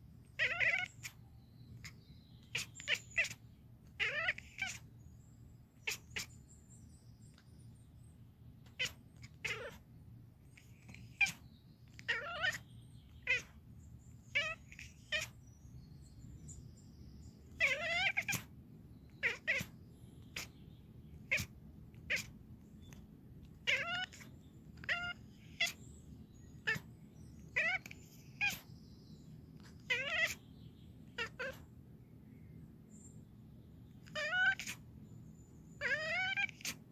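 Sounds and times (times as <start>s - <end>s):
cat chattering: 0.3s - 5.0s, 5.8s - 6.4s, 8.6s - 15.6s, 17.4s - 18.5s, 19.1s - 28.7s, 29.5s - 31.7s, 33.8s - 35.0s, 35.7s - 36.9s.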